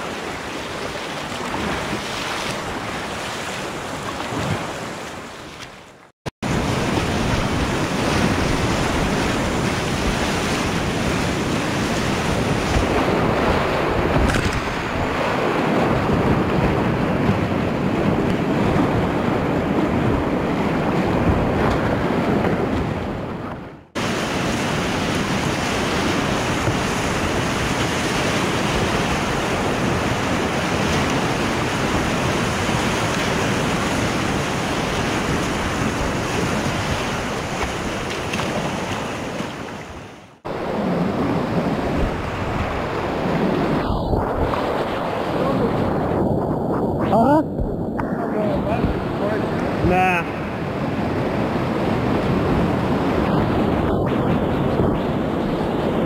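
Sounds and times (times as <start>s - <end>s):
paddle strokes: 0.0s - 6.1s, 6.8s - 15.3s, 21.2s - 40.4s
waves breaking over kayak bow: 0.0s - 46.5s, 47.6s - 56.0s
whitewater rapids rushing: 6.5s - 17.4s, 24.0s - 45.8s.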